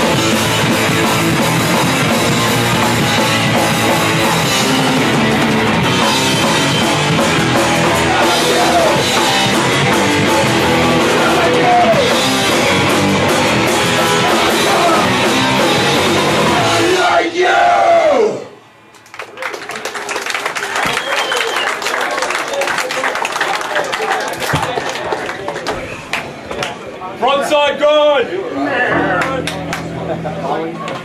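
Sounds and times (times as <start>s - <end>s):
drum kit: 0.0s - 18.5s
distorted electric guitar: 0.0s - 20.0s.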